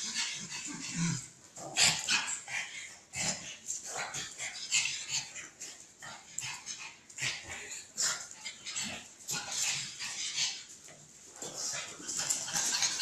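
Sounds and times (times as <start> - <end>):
dogs barking and yipping: 0.0 - 10.9, 11.6 - 13.0.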